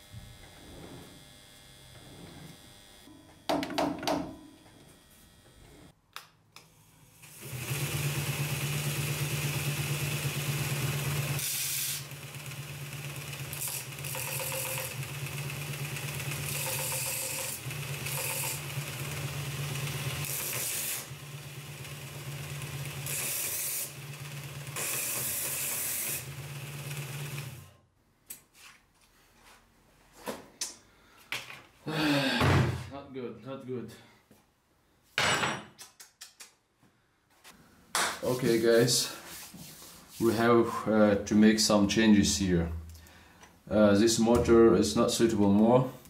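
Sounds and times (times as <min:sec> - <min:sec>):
belt grinder motor humming: 0:07.2 - 0:27.7.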